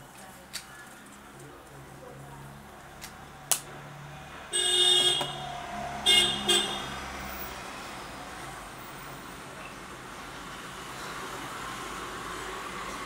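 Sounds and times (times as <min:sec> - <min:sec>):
vehicle horn honking: 0:04.5 - 0:07.0.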